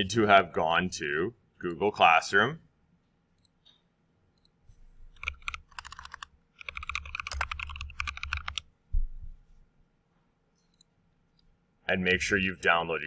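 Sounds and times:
typing on keyboard: 0:05.2 - 0:08.7.

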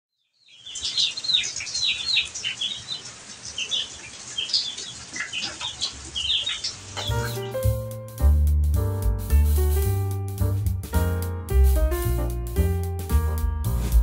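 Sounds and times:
birds chirping: 0:00.2 - 0:07.7.

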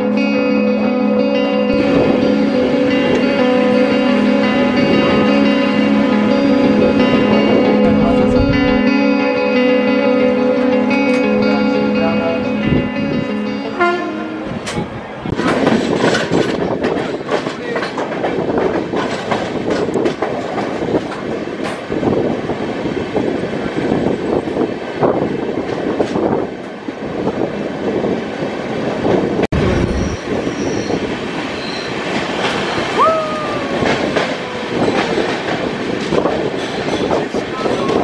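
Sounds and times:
train wheels rumbling on rails: 0:14.1 - 0:38.0
high squeal: 0:29.7 - 0:32.0.

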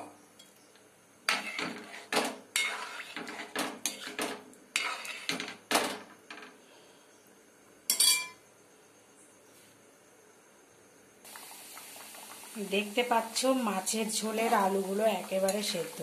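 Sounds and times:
spoon scraping metal pot: 0:01.3 - 0:05.6.

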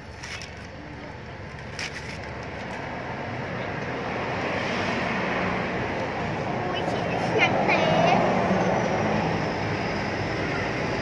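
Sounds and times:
passing vehicle engine: 0:02.9 - 0:11.0.

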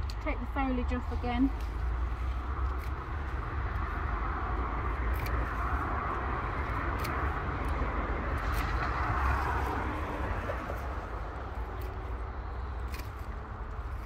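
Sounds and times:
secateurs snipping stems: 0:01.5 - 0:14.0.

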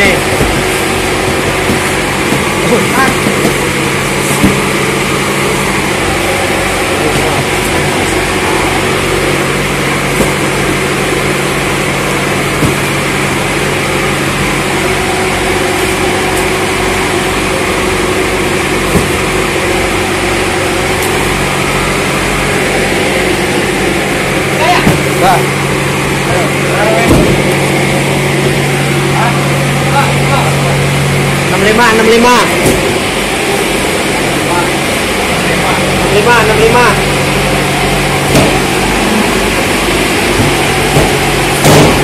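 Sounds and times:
machinery droning: 0:00.0 - 0:42.0
cardboard cartons knocking: 0:00.3 - 0:04.8.

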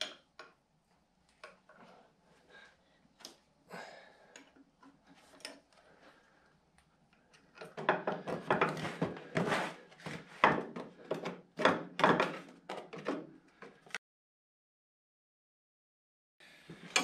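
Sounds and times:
scraping and rubbing strokes: 0:08.7 - 0:10.4.

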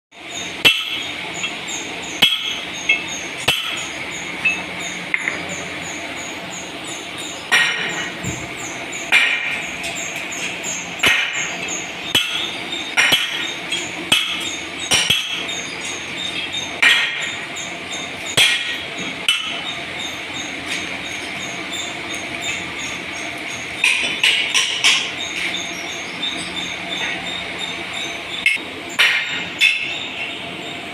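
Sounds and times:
metal striking cast iron: 0:00.2 - 0:05.7, 0:07.5 - 0:08.3, 0:09.0 - 0:25.6, 0:28.3 - 0:30.1
high-pitched mechanical chatter: 0:00.2 - 0:30.9.

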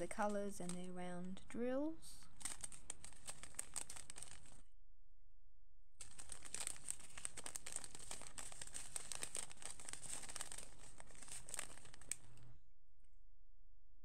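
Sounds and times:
plastic bags crinkling: 0:02.3 - 0:04.6, 0:06.0 - 0:12.6.

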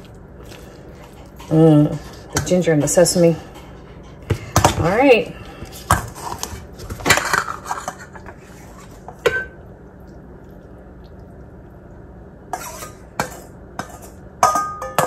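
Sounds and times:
metal tongs knocking on steel bowl: 0:14.4 - 0:15.0.

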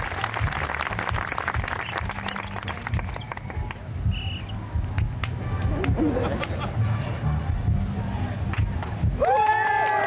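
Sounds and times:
crowd applauding: 0:00.0 - 0:03.8, 0:09.2 - 0:10.0.

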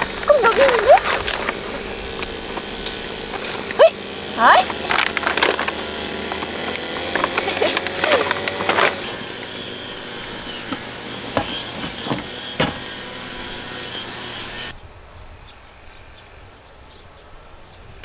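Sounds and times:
sharp clicks: 0:00.0 - 0:03.8
grass-cutting machine running: 0:00.0 - 0:14.7.

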